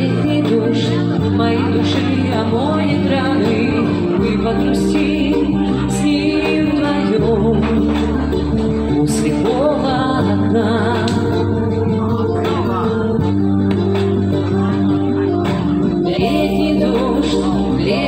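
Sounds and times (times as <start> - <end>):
pop backing track: 0.0 - 18.0
woman singing into a microphone: 0.0 - 18.0.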